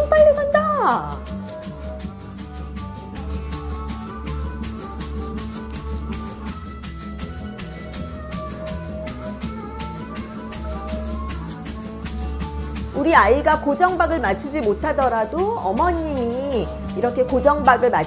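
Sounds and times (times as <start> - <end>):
egg shakers shaken: 0.0 - 18.0
recorded music: 0.0 - 18.0.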